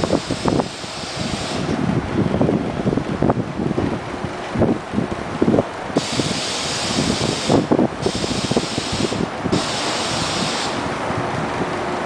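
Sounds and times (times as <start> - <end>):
loud hiss: 0.0 - 1.8, 6.0 - 11.0
subway train wheels clattering: 0.0 - 12.0.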